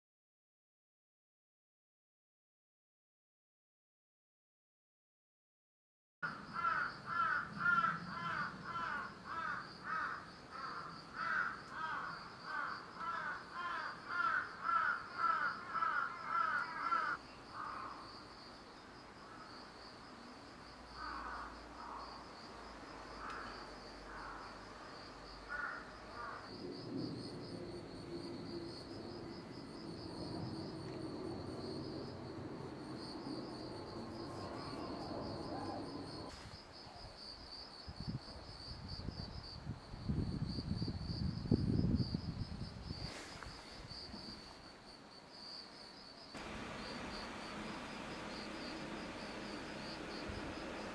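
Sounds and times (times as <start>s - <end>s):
bird cawing: 6.2s - 18.1s, 21.0s - 22.1s, 23.2s - 24.6s, 25.5s - 26.5s
insect chirring: 6.3s - 37.5s, 40.1s - 50.9s
low hum: 46.4s - 50.9s.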